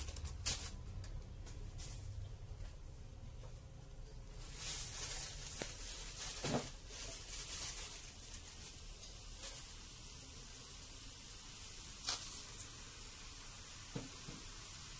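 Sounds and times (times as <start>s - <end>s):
coconut hissing in a pan: 4.4s - 14.9s.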